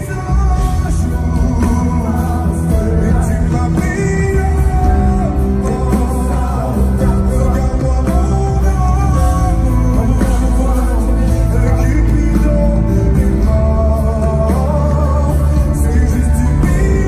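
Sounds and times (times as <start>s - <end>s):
heavy bass line: 0.0s - 17.0s
live pop-rock band music: 0.0s - 17.0s.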